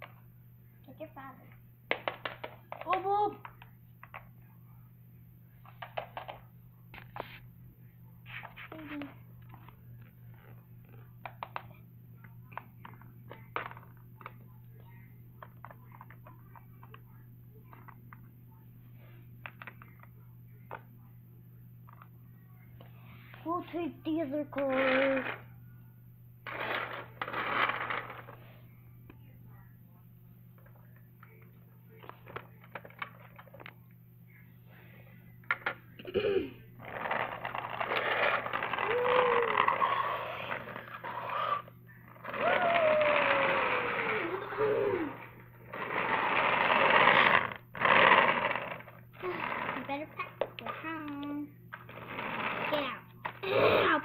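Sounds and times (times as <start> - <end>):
steady low hum: 0.0 - 54.0
toy car rolling on wooden floor: 12.5 - 14.4, 24.3 - 25.4, 26.4 - 28.6, 32.0 - 33.7, 36.8 - 54.0.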